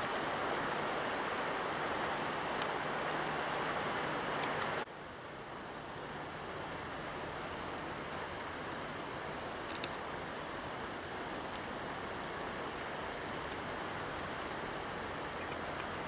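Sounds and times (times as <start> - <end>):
river rushing over rocks: 0.0 - 16.0.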